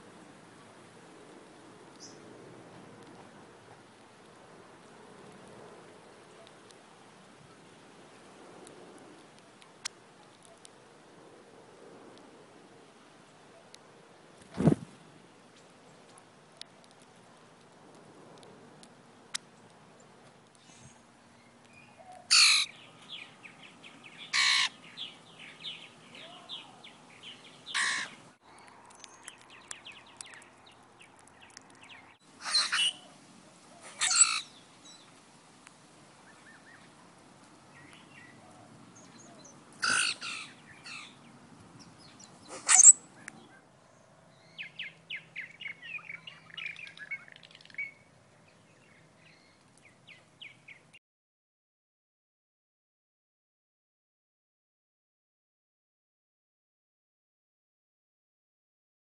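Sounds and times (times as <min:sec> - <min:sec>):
bird giving harsh calls: 0:22.3 - 0:22.8, 0:24.3 - 0:24.8, 0:27.7 - 0:28.2, 0:32.4 - 0:33.1, 0:33.8 - 0:34.5, 0:39.8 - 0:41.2, 0:42.4 - 0:43.0
short bird chirps: 0:42.4 - 0:43.3.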